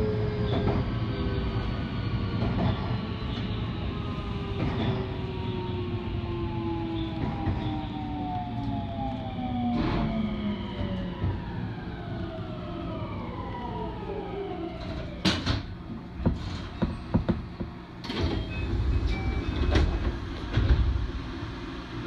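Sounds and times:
knocks and clunks: 14.9s - 18.5s.

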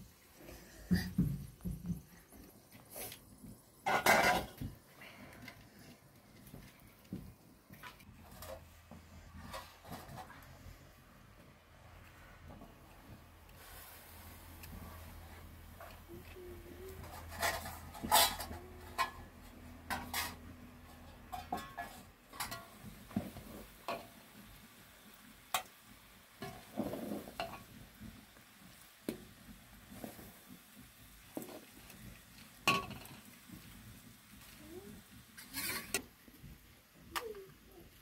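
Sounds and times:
cookware knocks and scrapes: 3.8s - 4.7s.

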